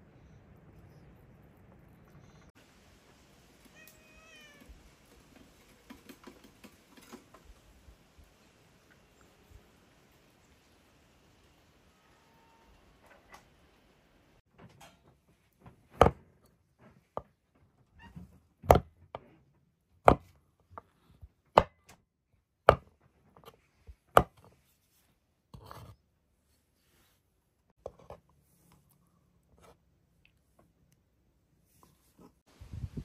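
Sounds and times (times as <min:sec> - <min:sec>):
knife chopping on wooden board: 0:20.0 - 0:20.3.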